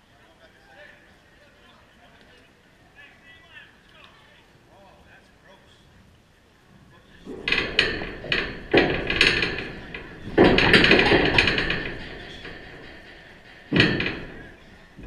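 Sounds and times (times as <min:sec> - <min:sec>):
chain-link fence rattling: 0:07.2 - 0:15.0.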